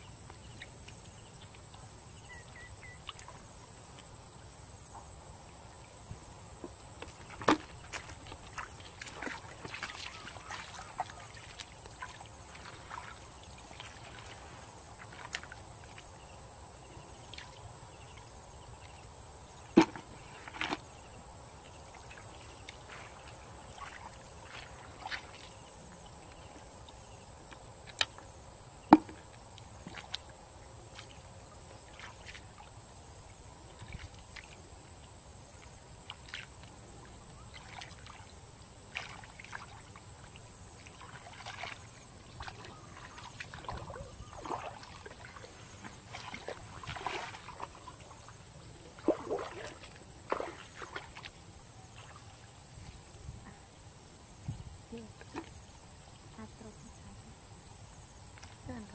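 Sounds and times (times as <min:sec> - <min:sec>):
hands splashing in water: 0:42.4 - 0:47.8, 0:49.0 - 0:51.3.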